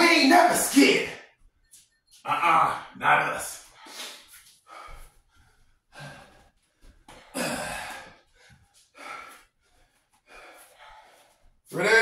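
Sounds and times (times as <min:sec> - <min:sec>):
man breathing hard: 0:03.7 - 0:11.6.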